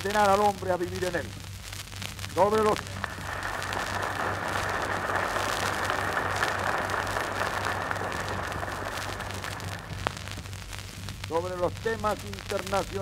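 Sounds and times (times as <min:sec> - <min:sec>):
low mains hum: 0:00.0 - 0:13.0
audience applauding: 0:02.7 - 0:10.4.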